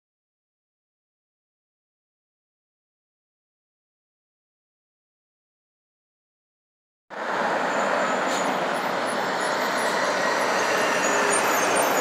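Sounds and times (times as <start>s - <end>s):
traffic passing: 7.1s - 12.0s.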